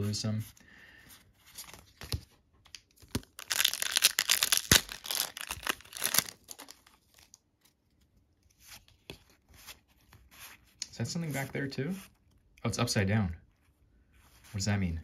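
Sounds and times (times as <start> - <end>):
cards rustling: 1.1 - 12.3
foil wrapper crinkling and tearing: 3.0 - 7.4.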